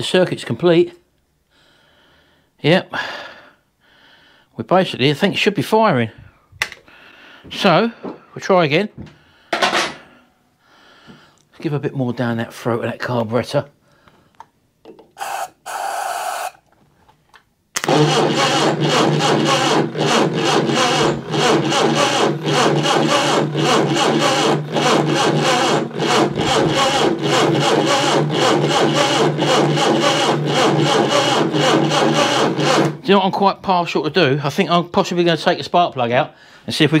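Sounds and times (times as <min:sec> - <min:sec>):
engine cranking on starter motor: 0:17.8 - 0:33.1.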